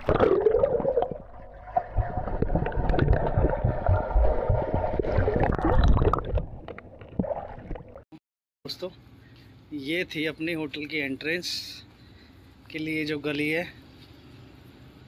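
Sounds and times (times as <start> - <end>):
pool water sloshing and gurgling: 0.0 - 8.0.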